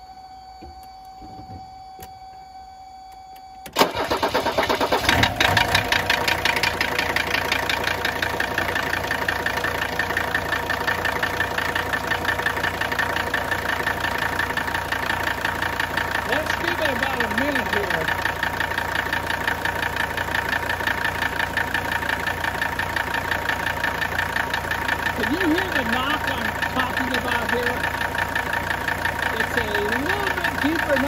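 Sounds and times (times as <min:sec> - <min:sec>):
faint steady tone: 0:00.0 - 0:03.8
diesel engine cranking and firing: 0:03.6 - 0:31.0
diesel engine idling with clatter: 0:03.7 - 0:31.0.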